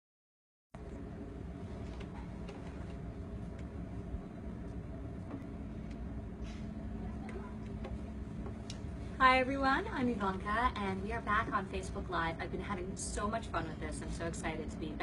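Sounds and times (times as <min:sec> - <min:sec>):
low room rumble: 0:00.8 - 0:15.0
steady low hum: 0:00.8 - 0:15.0.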